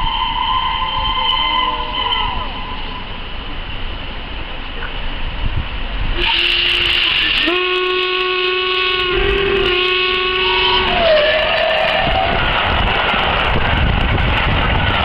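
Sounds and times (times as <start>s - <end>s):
steam locomotive whistle: 0.0s - 3.0s, 6.2s - 12.8s
steam hiss and train noise: 0.0s - 15.0s.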